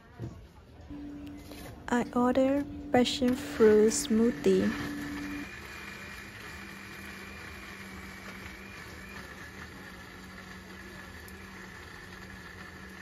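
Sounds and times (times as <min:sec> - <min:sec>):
thin high tone: 0:00.9 - 0:06.8
low hum: 0:00.9 - 0:07.1.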